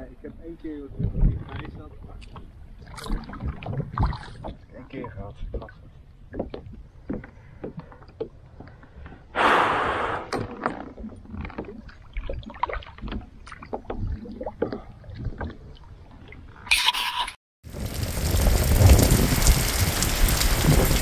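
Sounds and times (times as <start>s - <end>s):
paddle dipping into water: 10.3s - 16.4s
rush of splashing: 17.7s - 21.0s.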